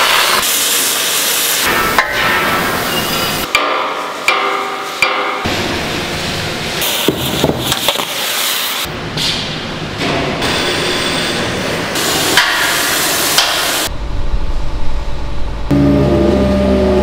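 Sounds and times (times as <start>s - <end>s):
low rumble: 13.9s - 17.0s.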